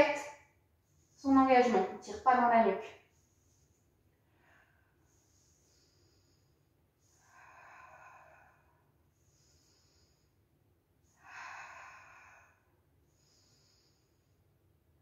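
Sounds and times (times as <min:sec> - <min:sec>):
woman breathing hard: 0:04.1 - 0:14.6.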